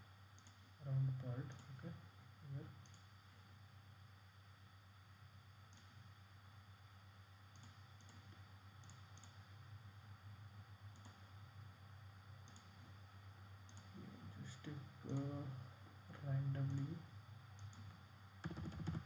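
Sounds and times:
steady low hum: 0.0 - 19.0
computer mouse clicks: 0.3 - 0.6, 1.4 - 1.8, 2.8 - 3.1, 5.7 - 6.0, 7.5 - 9.4, 10.9 - 11.3, 12.4 - 12.8, 13.6 - 14.1, 15.0 - 15.4, 16.6 - 17.0, 17.6 - 19.0.

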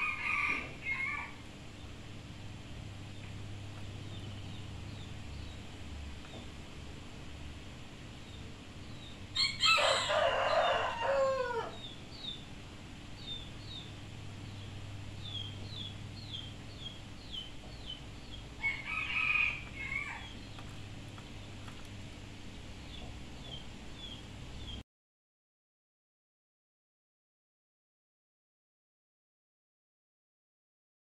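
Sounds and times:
rooster crowing: 0.0 - 1.4, 9.4 - 11.9, 18.6 - 20.4.

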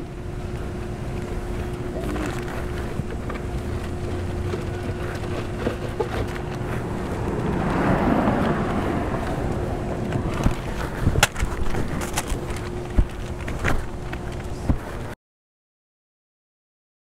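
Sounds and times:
rush of noise: 0.0 - 15.1
constant hum: 0.0 - 15.2
steady low rumble: 0.0 - 15.2.

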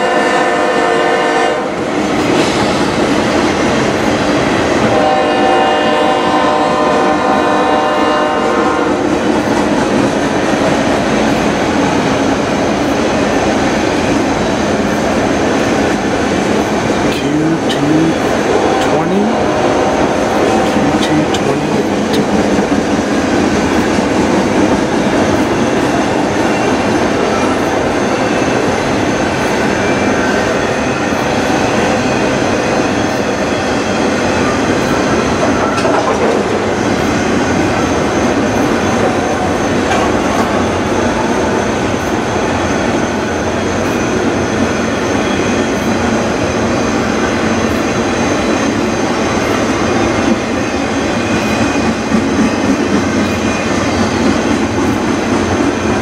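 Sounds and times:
steel wheels rumbling on rail: 0.0 - 56.0
wheels clicking over rail joints: 35.4 - 36.6.

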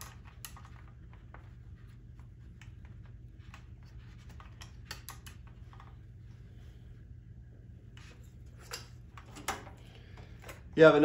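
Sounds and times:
low steady hum: 0.0 - 11.0
wire connectors clicking: 4.3 - 6.0.

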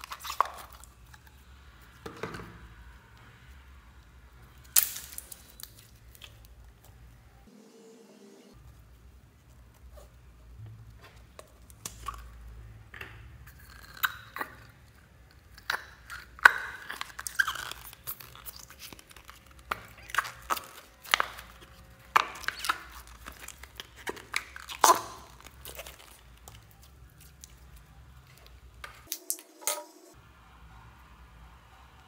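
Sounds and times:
slime squelching and popping: 0.0 - 1.2, 13.1 - 29.4.

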